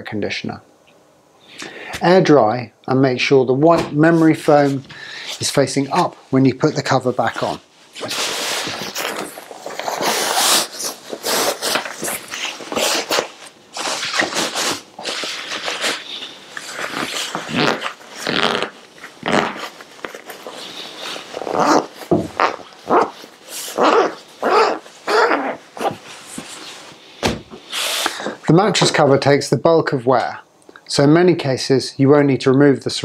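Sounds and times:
fabric rustling and swishing: 7.2s - 28.1s.

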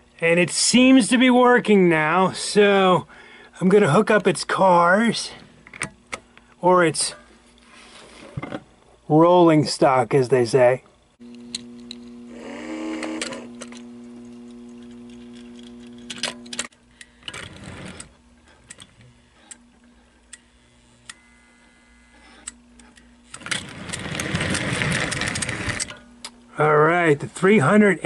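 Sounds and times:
steady electric hum: 0.0s - 28.0s
toy train cars clicking: 23.3s - 26.0s
toy locomotive clattering: 23.4s - 26.0s.

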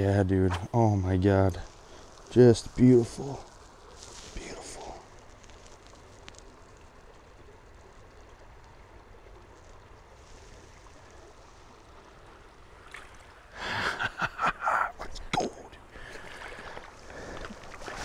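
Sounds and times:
creek water: 0.0s - 18.0s
fish splashing in shallow water: 5.0s - 13.6s, 15.4s - 18.0s.

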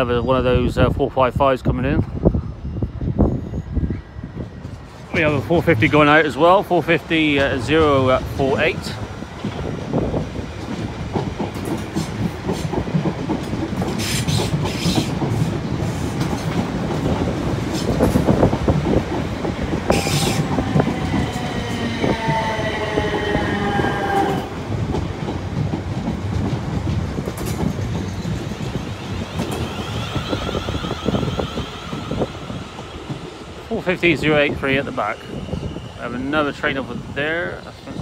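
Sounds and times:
train rumbling: 0.0s - 38.0s
wheels clicking over rail joints: 9.3s - 31.2s.

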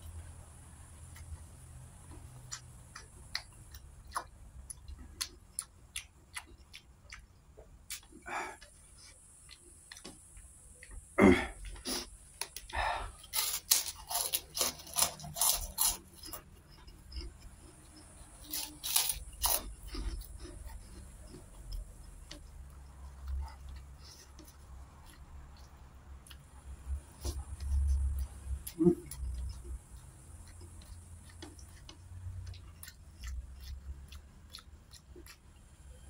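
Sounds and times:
soft chewing: 0.0s - 36.0s
crunching of crispy cracker: 11.9s - 17.4s, 18.0s - 21.8s.

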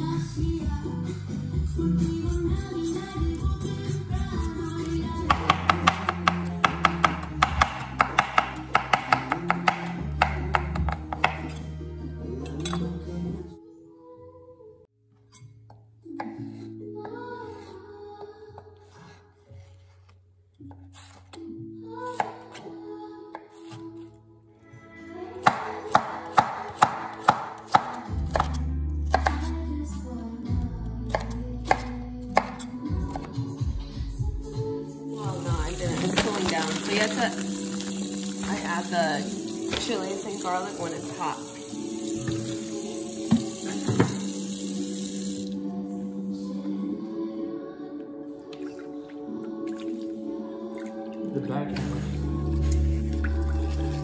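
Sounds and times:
background music: 0.0s - 54.0s
knife chopping on wooden board: 5.2s - 11.5s, 25.5s - 29.5s.

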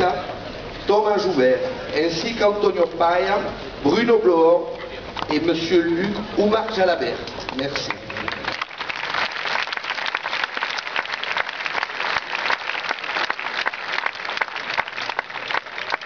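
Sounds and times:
large crowd applauding: 7.5s - 16.0s.

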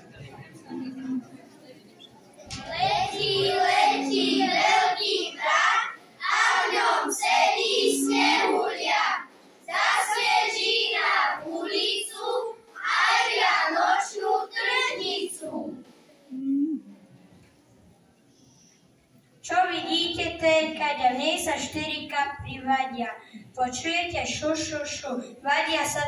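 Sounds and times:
children singing: 2.5s - 15.8s.

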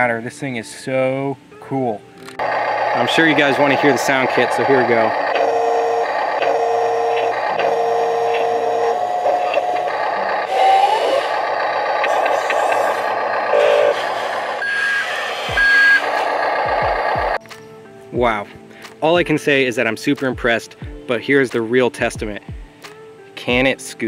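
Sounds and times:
simulated heavy machine engine: 2.4s - 17.4s
electronic beeps: 3.0s - 10.3s, 14.6s - 17.4s.

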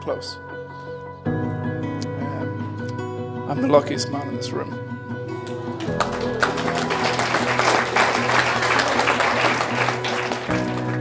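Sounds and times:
soft acoustic guitar music: 0.0s - 11.0s
crowd applauding: 5.4s - 11.0s.

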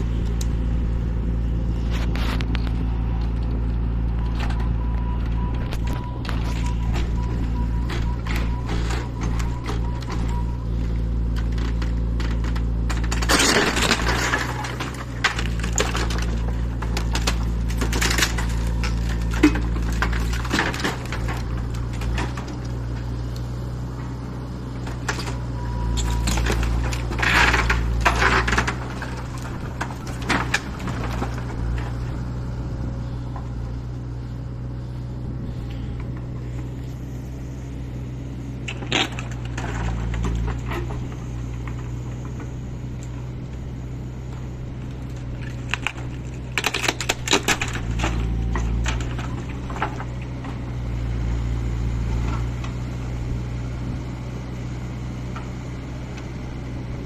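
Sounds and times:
diesel engine running: 0.0s - 57.0s
wood cracking and splintering: 5.6s - 23.4s, 24.7s - 32.5s, 38.6s - 43.2s, 44.3s - 50.8s
debris clattering down: 11.3s - 22.6s, 24.9s - 32.1s, 38.7s - 42.3s, 45.4s - 50.1s.

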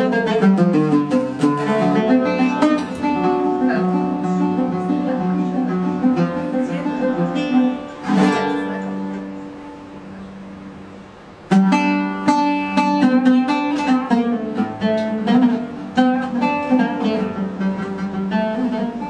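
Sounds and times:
plucked string music: 0.0s - 19.0s.

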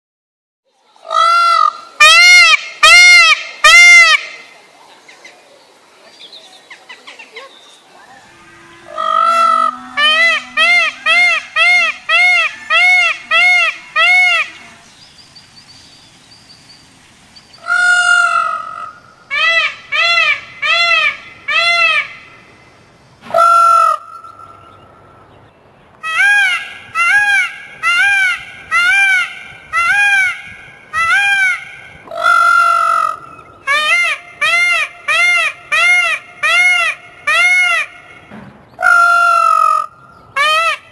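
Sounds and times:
peafowl honking calls: 8.0s - 15.0s, 17.6s - 22.3s, 26.0s - 40.9s.

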